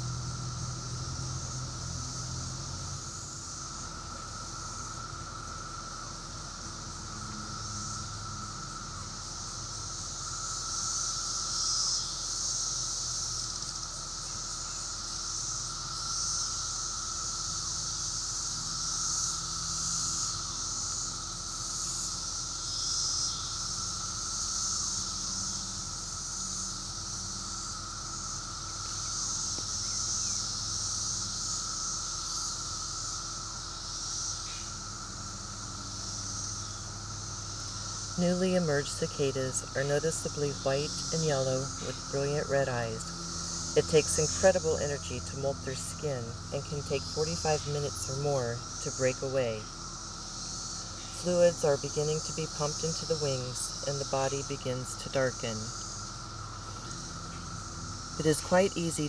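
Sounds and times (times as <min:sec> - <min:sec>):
insects buzzing: 0:00.0 - 0:59.0
low drone: 0:37.1 - 0:59.0.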